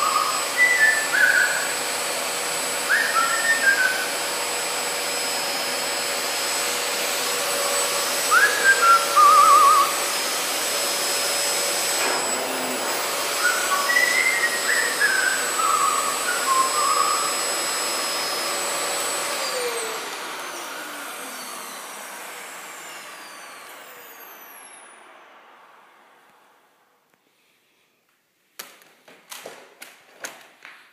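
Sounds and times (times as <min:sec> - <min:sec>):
parrot whistling: 0:00.0 - 0:01.8, 0:02.8 - 0:04.1, 0:08.2 - 0:10.0, 0:13.4 - 0:17.4
appliance motor whine: 0:00.0 - 0:26.1.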